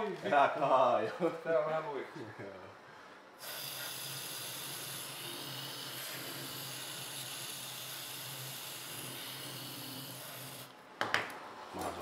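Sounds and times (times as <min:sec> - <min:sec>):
compressed air hissing: 0:03.4 - 0:10.7.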